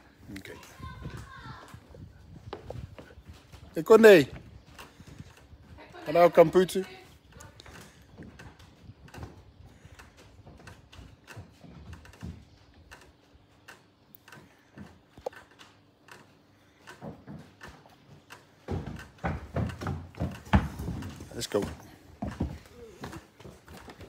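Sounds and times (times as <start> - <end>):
footsteps on wooden deck: 0.1 - 24.0
child running on boards: 0.5 - 24.0.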